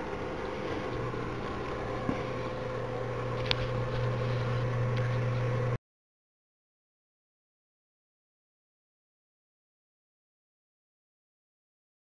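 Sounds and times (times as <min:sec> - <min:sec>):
heater fan blowing: 0:00.0 - 0:05.8
low hum: 0:00.0 - 0:05.8.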